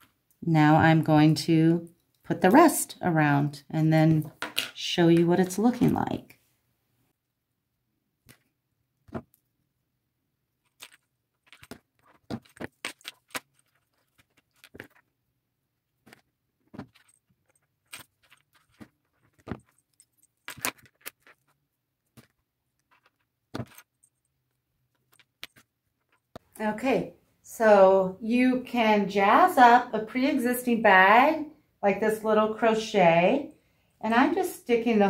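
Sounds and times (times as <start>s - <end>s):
small metal jewellery parts clinking: 16.9s - 21.6s.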